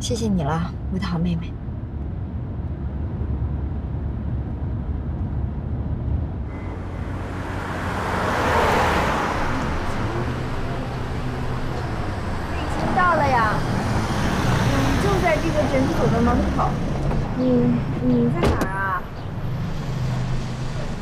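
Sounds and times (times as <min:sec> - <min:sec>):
road drone inside car: 0:00.0 - 0:21.0
traffic noise: 0:00.0 - 0:21.0
car driving past: 0:06.4 - 0:17.5.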